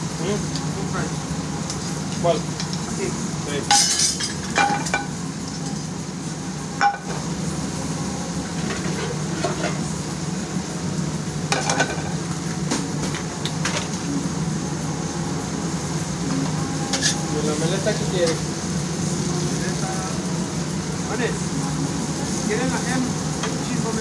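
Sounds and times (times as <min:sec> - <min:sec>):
food sizzling: 0:00.0 - 0:24.0
kitchenware clinking: 0:03.7 - 0:05.2, 0:06.8 - 0:07.2, 0:11.5 - 0:12.2.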